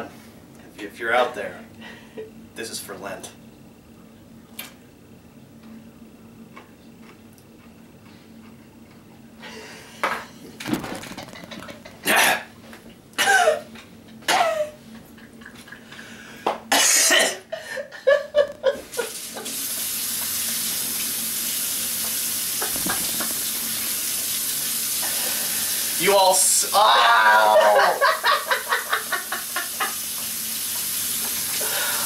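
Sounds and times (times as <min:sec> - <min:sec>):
faucet running into sink: 0:19.0 - 0:26.1, 0:27.8 - 0:32.0
person crying out: 0:26.7 - 0:28.1.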